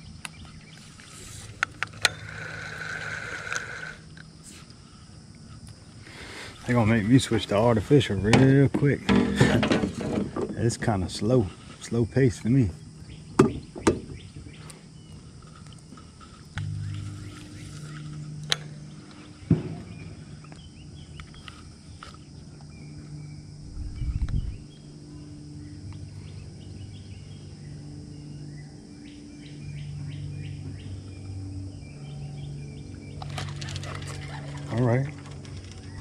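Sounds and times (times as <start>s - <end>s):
small birds chirping: 0.0s - 8.2s, 10.6s - 36.0s
insects chirping: 0.0s - 36.0s
low hum: 0.0s - 36.0s
short low rumble: 16.5s - 20.3s, 23.5s - 24.8s.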